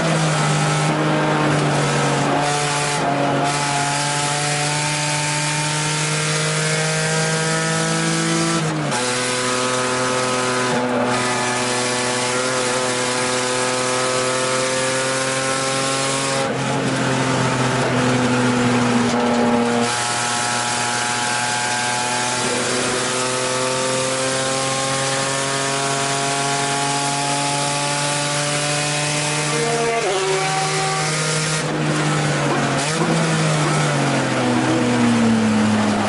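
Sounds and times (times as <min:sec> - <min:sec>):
race car engine at full power: 0:00.0 - 0:36.0.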